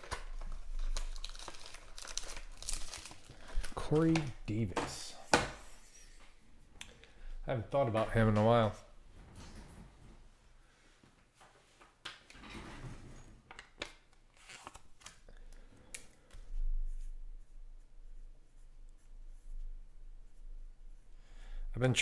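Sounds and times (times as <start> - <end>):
cards rustling and sliding: 0.0 - 6.2, 14.1 - 16.4.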